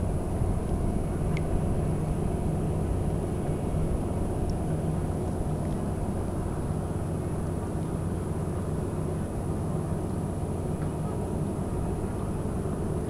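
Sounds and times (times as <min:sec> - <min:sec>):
wind rumbling on microphone: 0:00.0 - 0:08.1
distant motor drone: 0:00.0 - 0:13.0.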